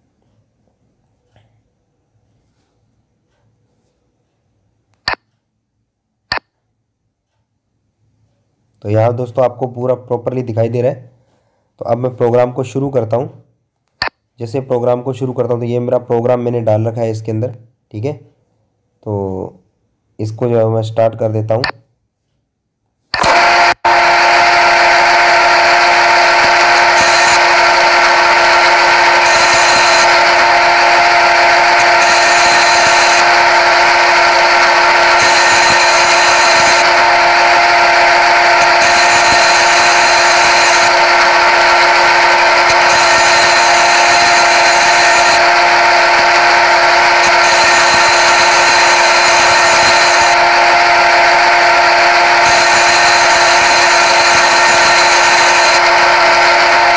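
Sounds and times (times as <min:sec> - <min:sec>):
machine whine of fixed tones: 0:23.2 - 0:56.9.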